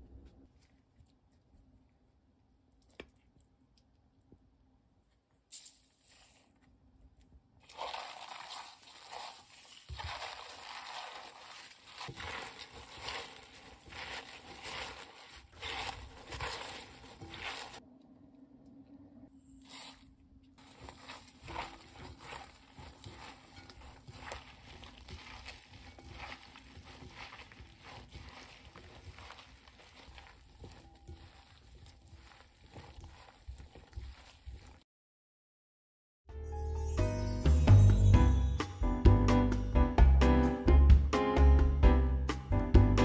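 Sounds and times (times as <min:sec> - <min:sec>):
leaves and gloves rustling: 0:07.7 - 0:17.8, 0:20.6 - 0:34.8.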